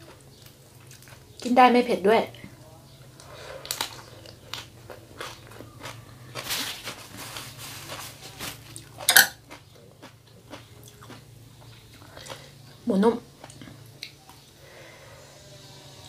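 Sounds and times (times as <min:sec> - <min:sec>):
crunchy chewing of leafy greens: 0:03.2 - 0:12.6.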